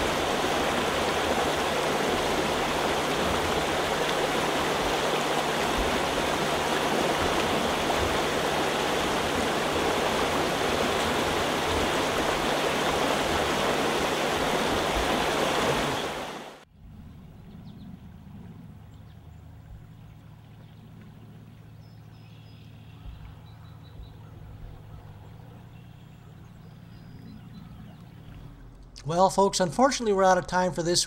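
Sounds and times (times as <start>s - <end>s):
stream water rushing: 0.0s - 16.7s.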